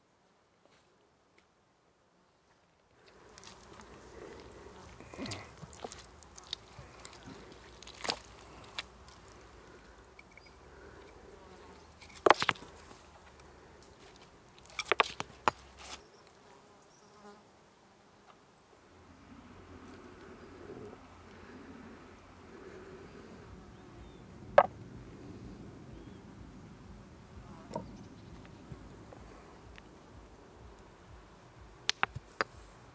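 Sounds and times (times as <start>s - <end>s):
sharp cracks: 31.8s - 32.6s.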